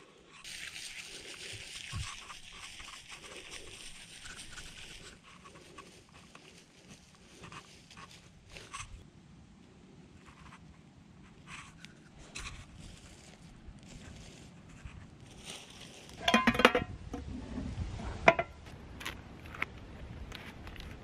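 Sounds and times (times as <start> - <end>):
metal pan clanking down: 16.2 - 16.9
metal cookware clattering: 16.2 - 17.0.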